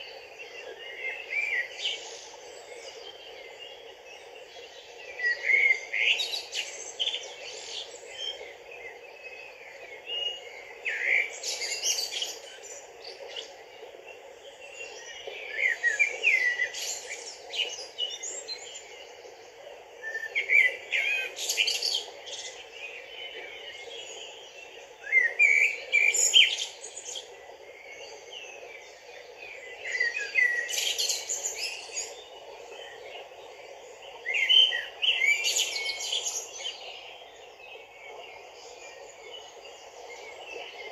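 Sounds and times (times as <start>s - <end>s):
stream running over stones: 14.6s - 40.9s.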